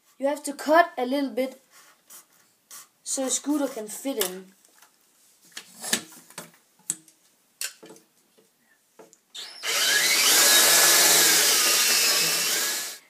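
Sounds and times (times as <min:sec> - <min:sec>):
cordless drill boring into wood: 0:09.4 - 0:13.0.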